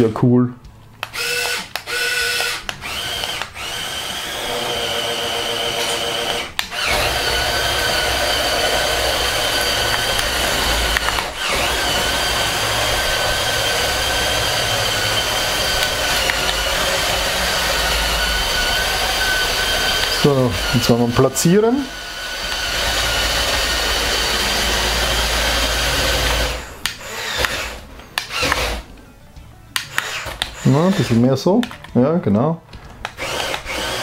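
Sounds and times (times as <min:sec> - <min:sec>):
toy motors whining: 0:01.0 - 0:28.9, 0:29.8 - 0:31.3, 0:33.1 - 0:34.0.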